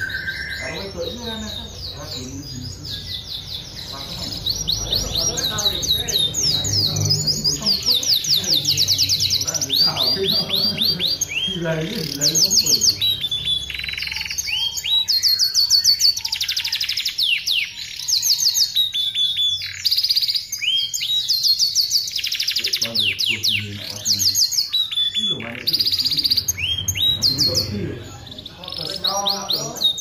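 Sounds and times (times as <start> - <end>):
canary singing trills: 0.0 - 30.0.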